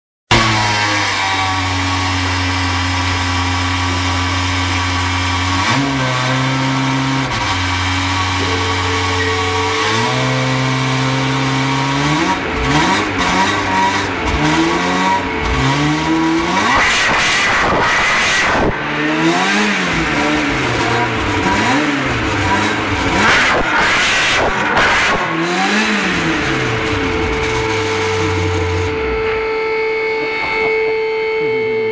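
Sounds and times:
car engine revving: 0.3s - 31.9s
steady tones jumping in pitch: 8.1s - 23.2s, 24.6s - 31.9s.

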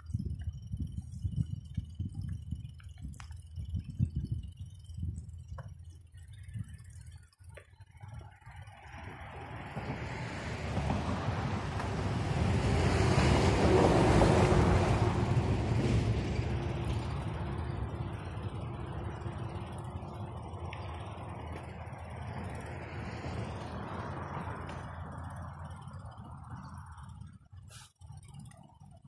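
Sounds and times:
vehicle passing by: 8.4s - 27.9s.

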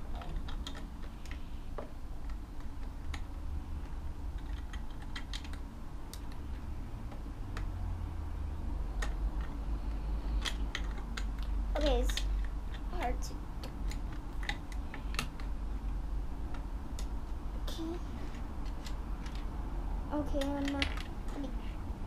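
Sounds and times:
low steady rumble: 0.0s - 22.0s
plastic bricks clicking: 0.1s - 3.3s, 4.3s - 6.5s.

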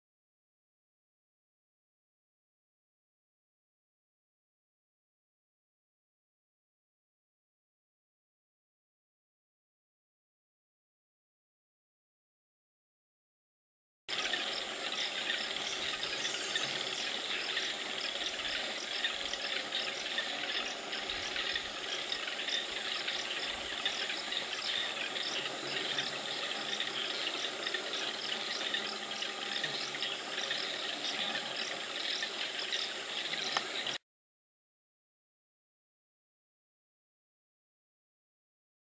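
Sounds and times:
high insect drone: 14.1s - 34.0s
rhythmic chirping: 14.1s - 34.0s.

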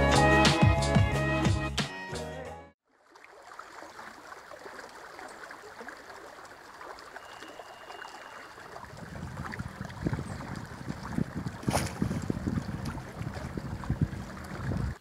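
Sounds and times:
water lapping and trickling: 2.8s - 15.0s
wind buffeting microphone: 8.8s - 15.0s.

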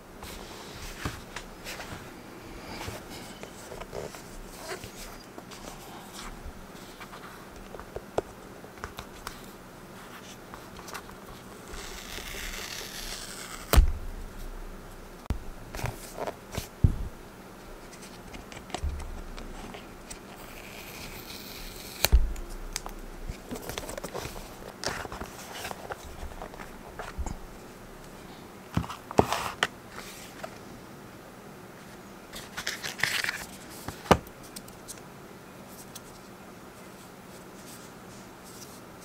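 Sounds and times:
sharp knock: 13.7s - 14.3s.

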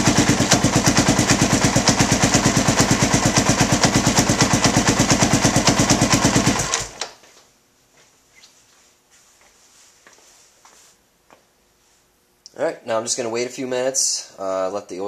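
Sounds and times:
motorcycle engine idling: 0.0s - 6.9s.

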